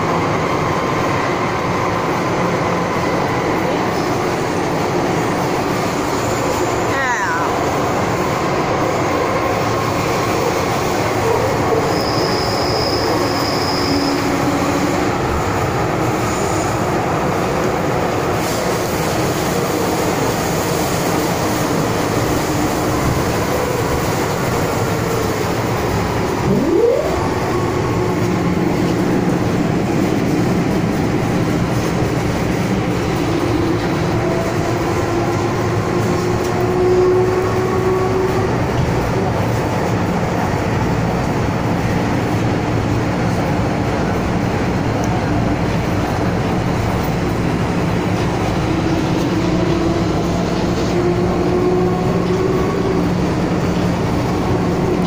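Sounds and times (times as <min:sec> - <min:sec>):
train wheels rumbling on rail: 0:00.0 - 0:55.0
short rising whine: 0:26.4 - 0:27.9.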